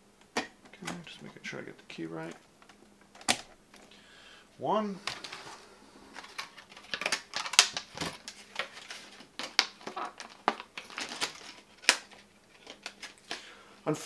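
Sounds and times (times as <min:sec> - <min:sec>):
plastic packaging crinkling: 0:06.1 - 0:13.5.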